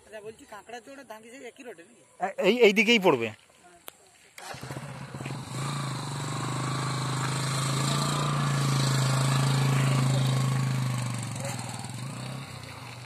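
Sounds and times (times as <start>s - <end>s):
motorcycle engine running: 4.4s - 13.0s.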